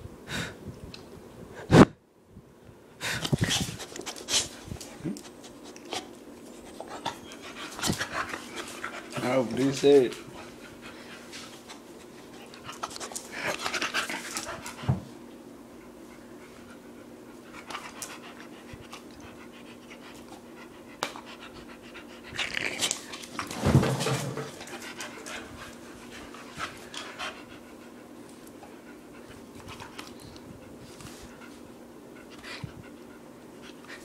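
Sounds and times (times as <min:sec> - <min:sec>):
thump: 0:23.6 - 0:24.5
dog panting: 0:24.6 - 0:34.0.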